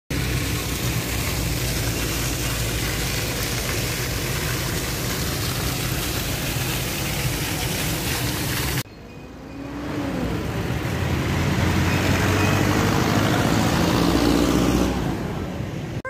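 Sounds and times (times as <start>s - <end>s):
fountain jets splashing: 0.1s - 8.9s.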